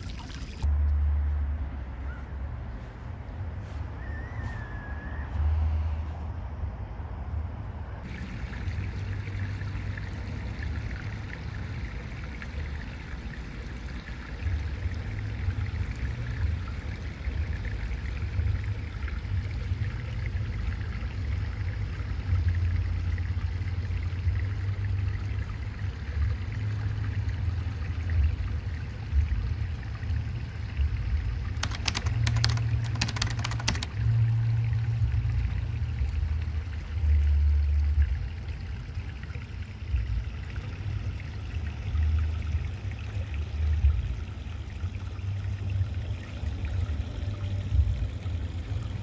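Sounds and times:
sharp clicks: 31.6 - 33.9.

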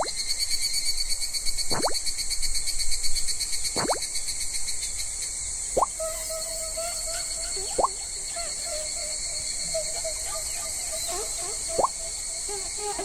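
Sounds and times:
short rising insect call: 0.0 - 13.0
fast-pulsing insect buzz: 5.8 - 13.0.

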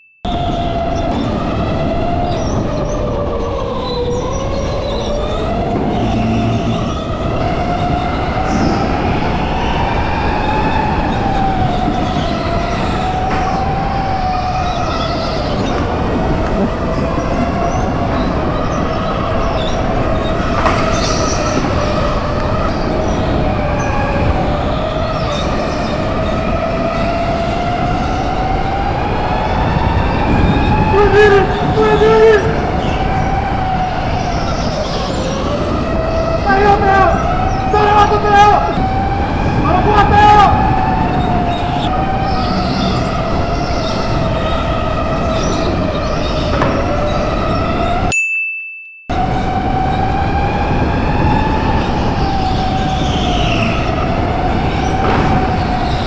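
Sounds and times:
go-kart rumble: 0.4 - 31.8.

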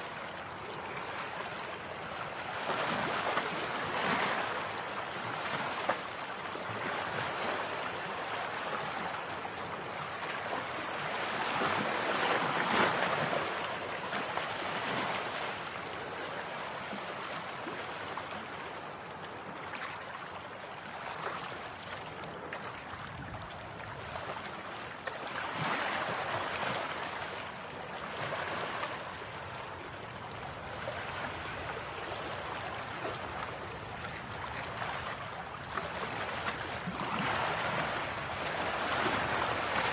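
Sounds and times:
sea waves washing in: 22.6 - 39.9.

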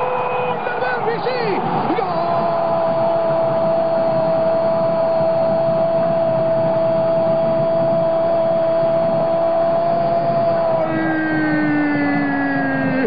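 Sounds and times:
stadium crowd roar: 0.0 - 13.0
commentator shouting goal: 0.2 - 2.8.

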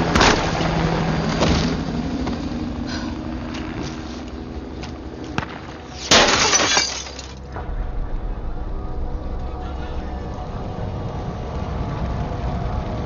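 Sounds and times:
low steady background rumble: 0.0 - 13.0
glass shattering: 6.0 - 7.5.

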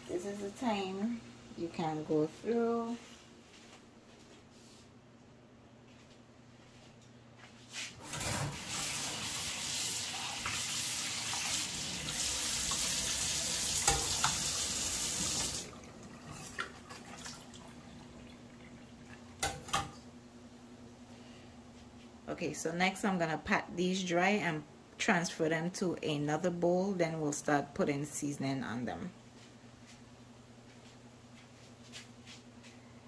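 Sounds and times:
tap water running into sink: 8.2 - 19.8.

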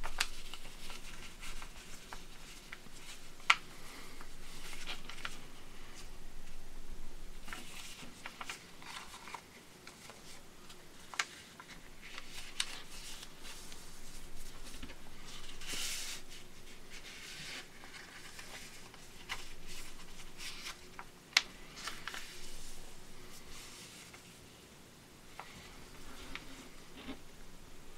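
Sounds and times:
sharp clicks of paper folds: 0.0 - 5.4, 7.5 - 13.8
paper rustling and sliding: 0.0 - 6.6, 7.4 - 24.4, 25.3 - 27.2.

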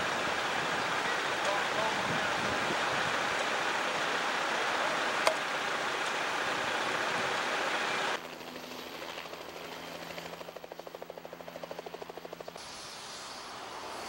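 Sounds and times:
water rushing and churning: 0.0 - 8.2
helicopter engine hum: 6.7 - 12.6.

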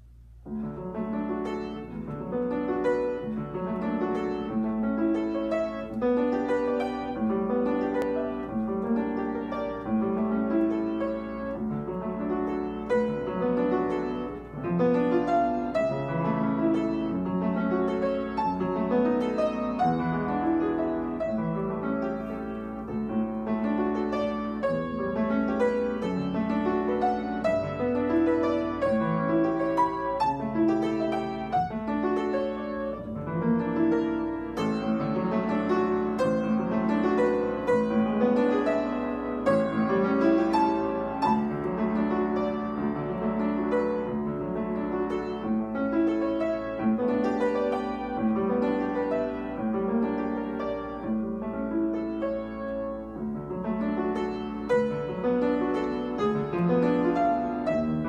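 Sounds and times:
upright piano etude: 0.0 - 58.0.

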